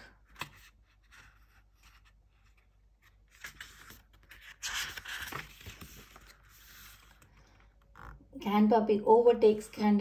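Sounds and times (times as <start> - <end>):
book page rustling: 0.2 - 8.2.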